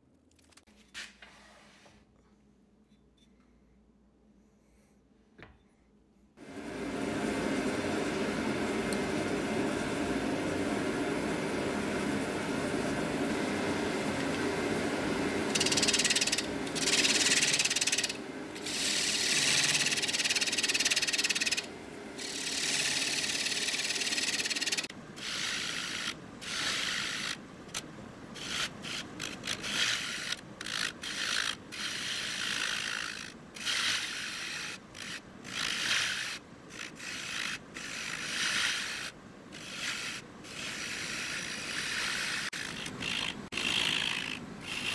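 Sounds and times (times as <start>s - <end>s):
wood lathe humming: 6.4s - 24.9s
turning tool scraping wood: 15.4s - 27.4s, 28.4s - 44.9s.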